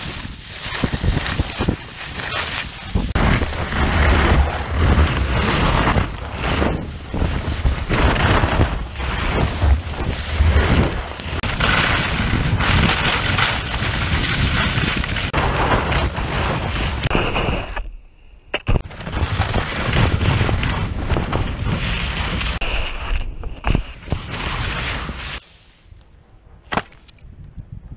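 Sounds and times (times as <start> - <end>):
skis scraping over snow: 0.0 - 17.1, 18.8 - 22.8, 24.0 - 25.7
wind buffeting microphone: 0.0 - 17.1, 26.1 - 27.9.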